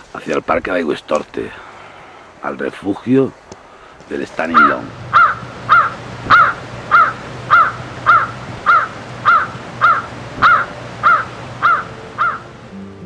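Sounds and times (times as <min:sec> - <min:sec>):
bird calling: 0:03.3 - 0:12.8.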